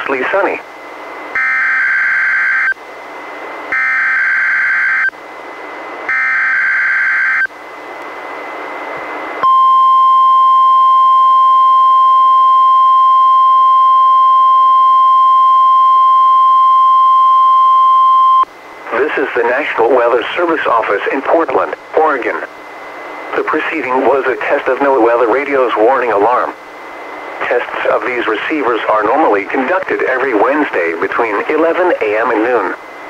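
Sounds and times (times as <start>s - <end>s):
radio hiss: 0.0s - 1.2s, 18.5s - 33.0s
steady warning alarm tone: 1.3s - 2.8s, 3.7s - 5.2s, 6.1s - 7.5s, 9.4s - 18.5s.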